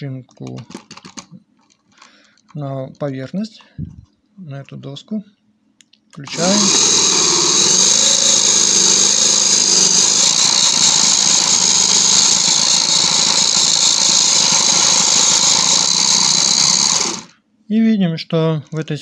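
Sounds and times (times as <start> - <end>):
toy car motor whirring: 6.3 - 17.3.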